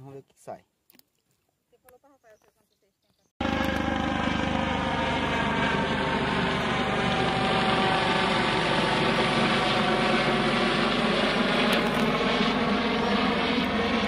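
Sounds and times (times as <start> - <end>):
outboard motor running: 3.4 - 14.0.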